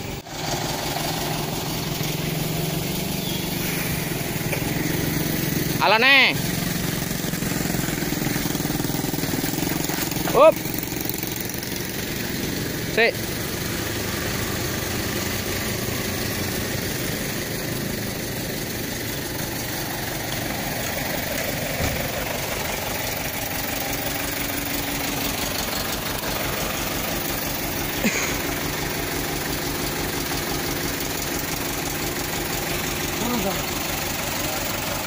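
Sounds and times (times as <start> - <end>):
diesel truck engine idling: 0.0 - 35.0
short thump: 21.8 - 22.1.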